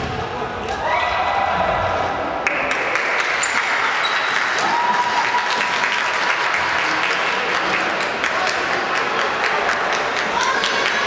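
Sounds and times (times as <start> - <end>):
spectators clapping and cheering: 2.4 - 11.0.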